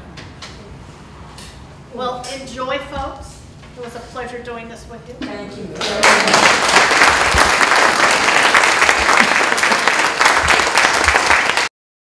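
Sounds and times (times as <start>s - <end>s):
audience applauding: 5.8s - 11.7s.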